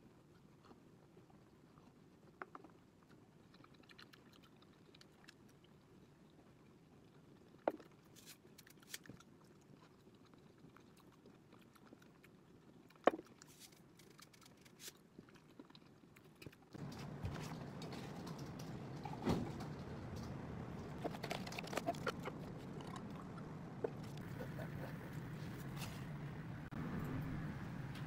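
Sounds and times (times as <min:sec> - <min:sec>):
person eating an egg: 0:21.0 - 0:25.1.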